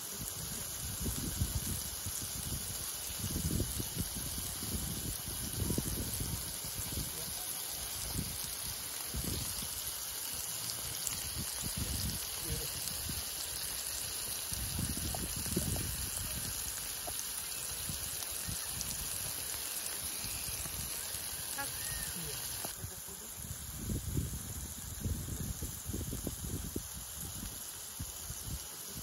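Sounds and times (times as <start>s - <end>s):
burger patties sizzling on griddle: 0.0s - 29.0s
wind rumble on microphone: 0.2s - 7.4s, 8.0s - 9.8s, 11.2s - 13.2s, 14.5s - 17.2s, 22.6s - 29.0s.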